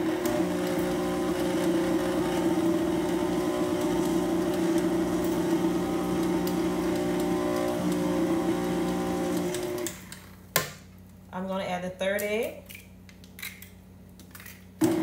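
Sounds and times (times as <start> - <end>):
electric mixer running: 0.0 - 10.1.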